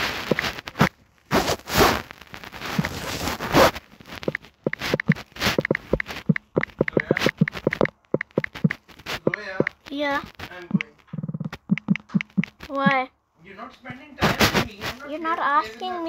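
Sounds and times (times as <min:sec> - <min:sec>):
rustling: 0:00.0 - 0:13.0, 0:13.8 - 0:16.0
typing on touchscreen keyboard: 0:04.2 - 0:09.9, 0:10.5 - 0:13.0.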